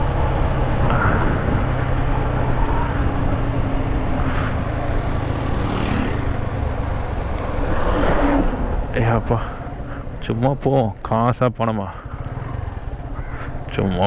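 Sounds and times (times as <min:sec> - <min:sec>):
wind rushing over microphone: 0:00.0 - 0:04.7, 0:05.5 - 0:10.2
motorcycle engine running: 0:00.0 - 0:07.8, 0:08.4 - 0:14.0.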